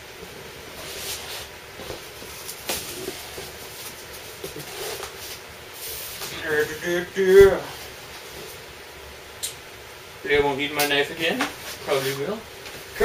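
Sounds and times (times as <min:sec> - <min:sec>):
packing tape scraping and rustling: 0:00.7 - 0:08.6, 0:11.2 - 0:13.0.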